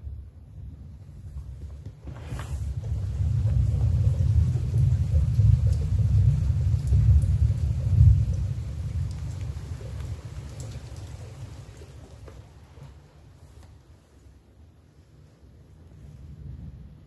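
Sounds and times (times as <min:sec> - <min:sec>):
low rolling thunder rumble: 0:00.0 - 0:13.3, 0:15.5 - 0:17.0
light rain pattering: 0:00.0 - 0:17.0
thunder crack: 0:02.0 - 0:12.2.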